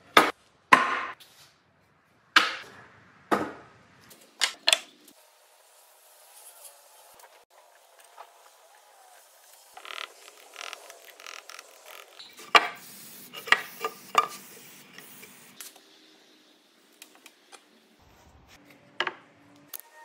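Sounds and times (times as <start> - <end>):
short hissing bursts: 12.2 - 15.6.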